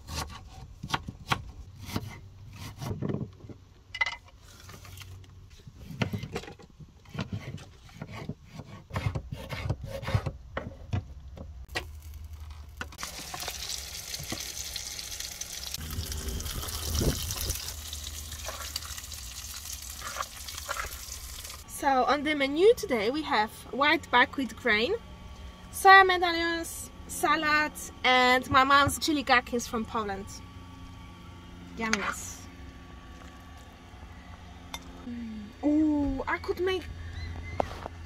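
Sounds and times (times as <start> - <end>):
knife chopping on wooden board: 7.1 - 10.4
food sizzling in a pan: 13.0 - 21.6.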